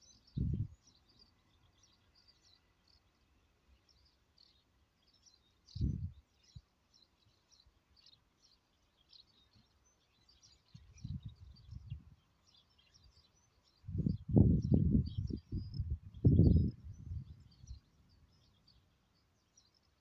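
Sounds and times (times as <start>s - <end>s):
small birds chirping: 0.0s - 20.0s
wind buffeting microphone: 0.3s - 0.8s, 5.7s - 6.2s, 10.8s - 12.2s, 13.8s - 18.1s.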